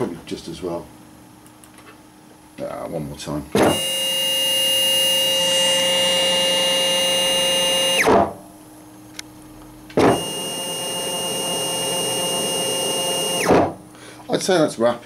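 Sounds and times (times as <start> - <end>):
faint hum: 0.0 - 15.0
stepper motor whining: 3.6 - 8.3, 10.0 - 13.8.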